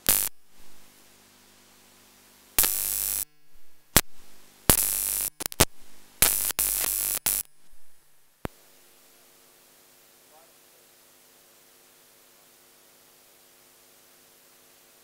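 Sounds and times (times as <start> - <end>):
loud static crackle: 0.0 - 9.7
faint electrical hum: 0.0 - 15.0.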